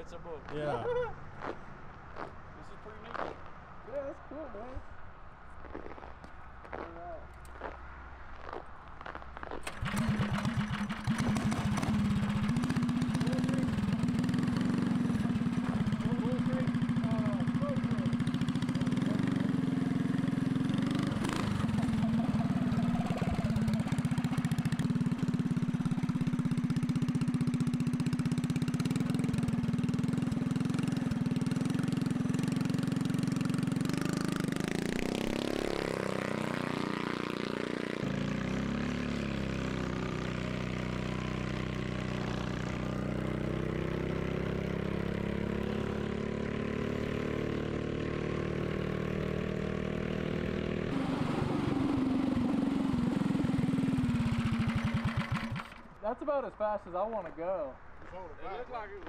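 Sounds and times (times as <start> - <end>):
engine revving: 9.6 - 56.0.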